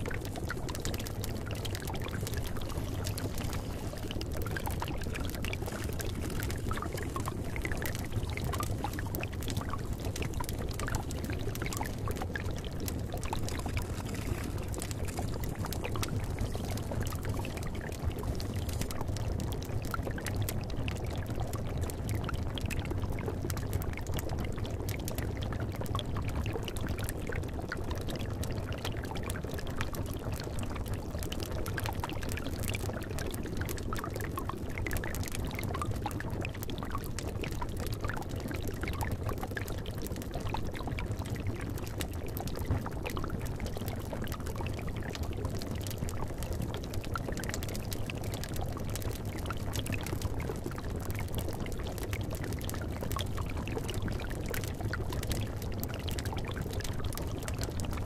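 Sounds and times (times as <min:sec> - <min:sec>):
wood fire crackling: 0:00.0 - 0:21.2
liquid bubbling in a cauldron: 0:00.0 - 0:58.0.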